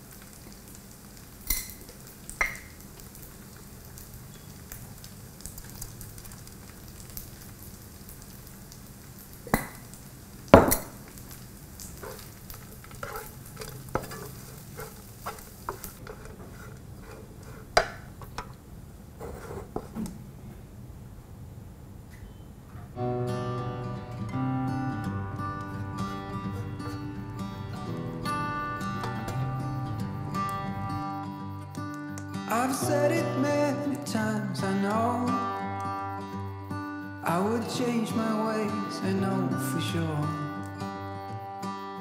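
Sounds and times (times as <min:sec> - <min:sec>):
oil sizzling in a pan: 0:00.0 - 0:19.9, 0:23.0 - 0:41.8
spatula clacking against pan: 0:12.8 - 0:18.5.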